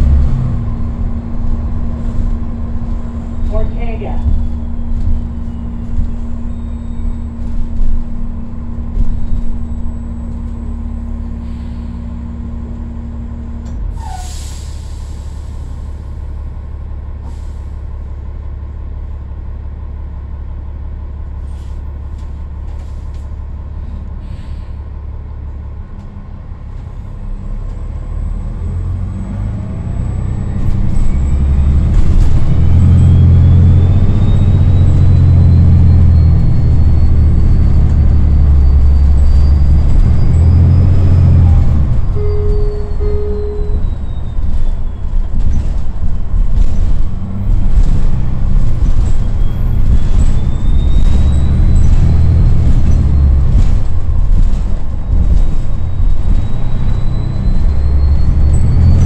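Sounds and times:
bus engine humming: 0:00.0 - 0:59.0
air brakes hissing: 0:11.3 - 0:12.2, 0:14.0 - 0:15.9, 0:17.2 - 0:17.9, 0:21.4 - 0:22.0, 0:22.8 - 0:24.9.

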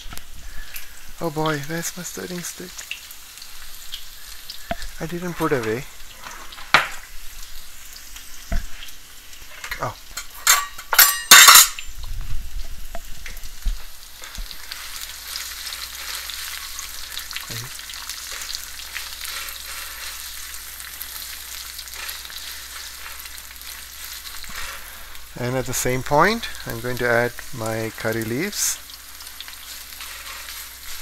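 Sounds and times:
onion sizzling in hot oil: 0:00.0 - 0:31.0
spatula scraping wok: 0:13.8 - 0:25.3, 0:29.1 - 0:31.0.

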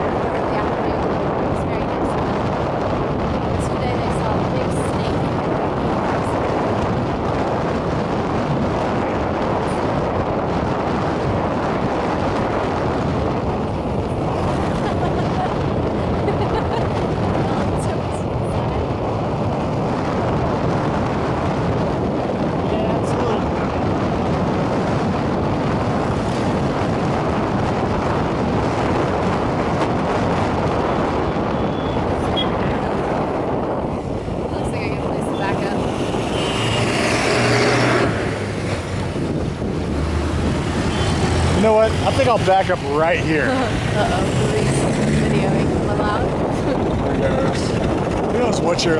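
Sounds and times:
motorbike engine: 0:00.0 - 0:48.9
road noise: 0:00.0 - 0:48.9
wind rushing: 0:00.0 - 0:48.9.

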